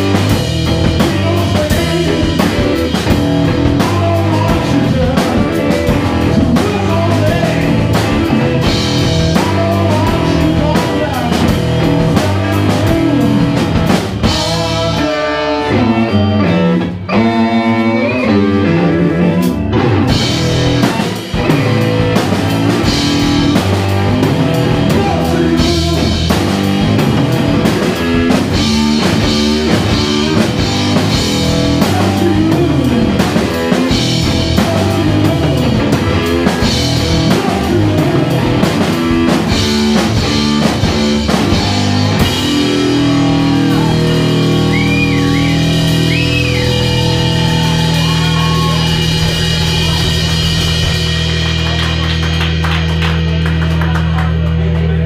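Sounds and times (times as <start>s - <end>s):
bass guitar: 0.0s - 55.0s
drum kit: 0.0s - 55.0s
electric guitar: 0.0s - 55.0s.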